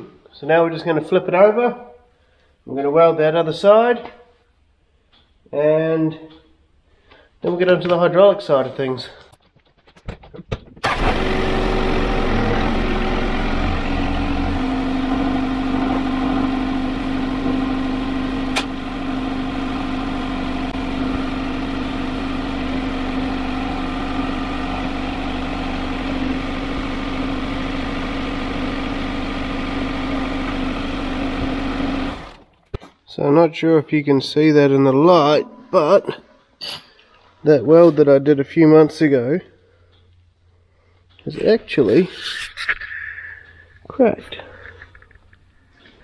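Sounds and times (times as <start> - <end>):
tractor diesel engine running: 10.8 - 32.4.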